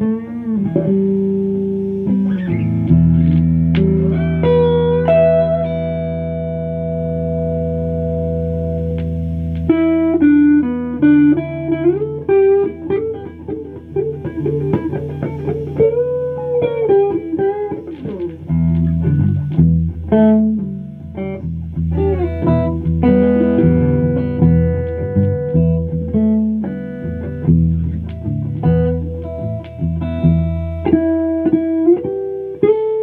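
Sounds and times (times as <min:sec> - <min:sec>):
electric guitar playing: 0:00.0 - 0:33.0.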